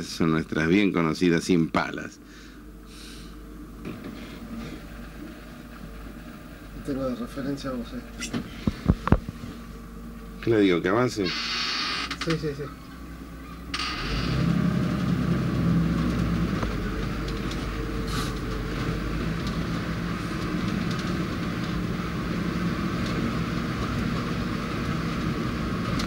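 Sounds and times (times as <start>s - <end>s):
vehicle engine running: 0.0s - 26.0s
light knocks from vehicle body: 8.2s - 9.6s.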